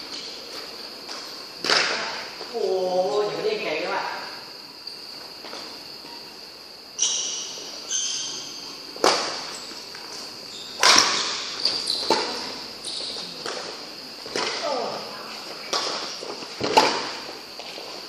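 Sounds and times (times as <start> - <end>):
shoe squeaks on court floor: 7.0 - 13.4
racket hitting shuttlecock: 8.2 - 9.5, 10.8 - 14.7, 15.7 - 17.2.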